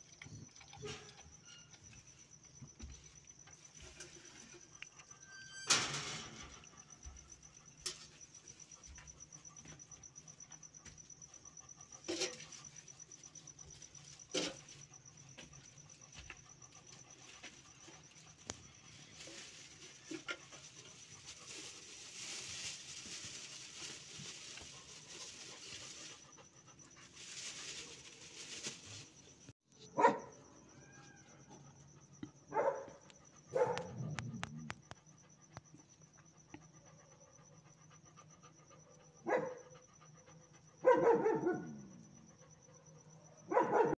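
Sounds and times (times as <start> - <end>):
dog barking: 29.8 - 30.6, 32.4 - 34.6, 39.1 - 39.8, 40.8 - 42.0, 42.8 - 43.9.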